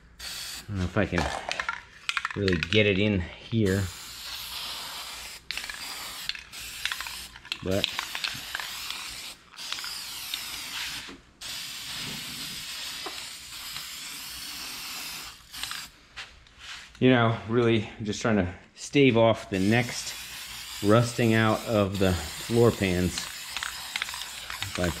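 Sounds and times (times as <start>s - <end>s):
aerosol can spraying hiss: 0.0s - 0.8s, 3.8s - 15.9s, 19.6s - 25.0s.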